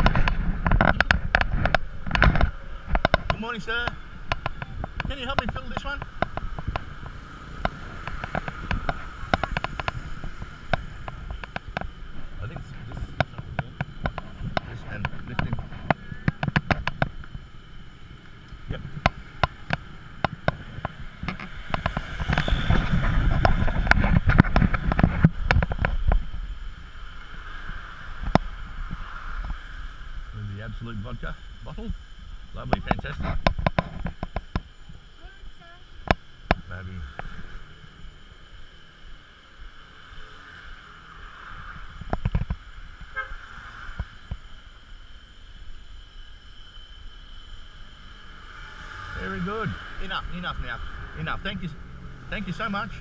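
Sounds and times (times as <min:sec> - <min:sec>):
scooter seat clicks and knocks: 0:00.0 - 0:12.1, 0:13.1 - 0:17.4, 0:18.5 - 0:26.3
low rumble: 0:00.0 - 0:39.8.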